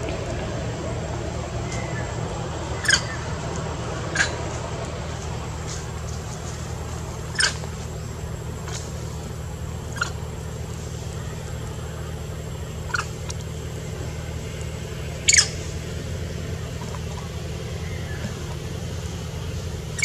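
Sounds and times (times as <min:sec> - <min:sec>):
steady low hum: 0:00.0 - 0:20.0
macaque high-pitched squeaks: 0:07.3 - 0:07.6.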